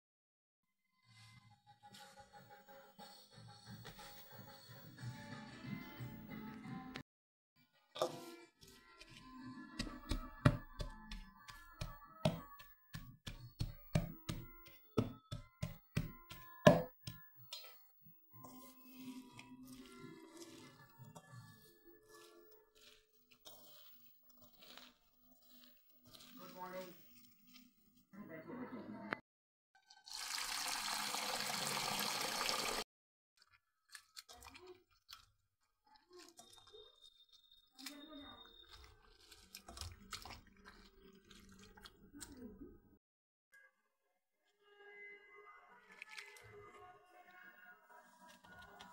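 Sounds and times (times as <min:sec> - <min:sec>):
utensil knocking on steel bowl: 0:09.8 - 0:17.2
tap water rushing into steel bowl: 0:30.0 - 0:32.8
soft wet squelches: 0:33.4 - 0:43.0, 0:45.8 - 0:46.9.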